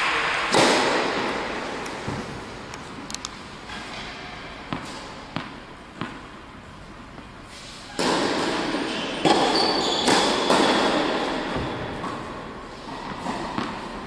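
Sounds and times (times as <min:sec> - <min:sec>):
racket striking ball: 0:00.0 - 0:02.3, 0:03.8 - 0:06.4, 0:07.9 - 0:14.0
tennis ball bouncing on hard court: 0:04.1 - 0:06.4, 0:07.9 - 0:12.3, 0:13.0 - 0:14.0
short high squeaks: 0:08.9 - 0:10.5.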